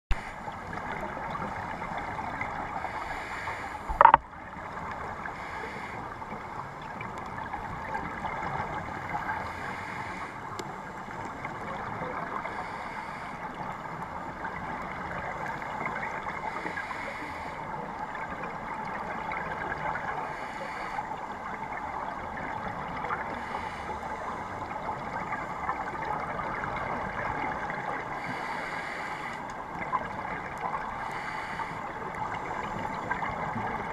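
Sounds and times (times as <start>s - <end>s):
underwater crackling hiss: 0.1s - 6.7s, 8.5s - 11.0s, 11.8s - 18.0s, 19.4s - 21.4s, 22.6s - 33.9s
regulator breathing hiss: 2.9s - 4.1s, 28.2s - 29.5s, 31.0s - 31.8s.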